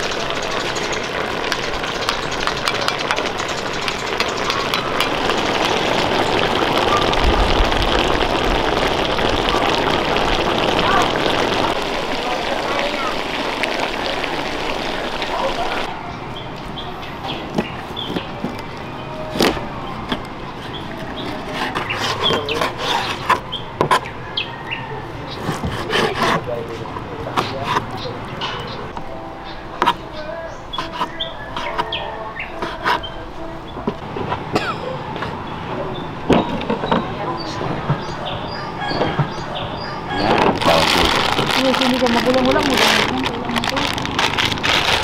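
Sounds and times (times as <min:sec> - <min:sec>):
stew sizzling and bubbling: 0:00.0 - 0:15.9, 0:19.4 - 0:24.6, 0:38.0 - 0:45.0
birds chirping: 0:00.3 - 0:25.7, 0:27.1 - 0:34.0, 0:34.8 - 0:44.6.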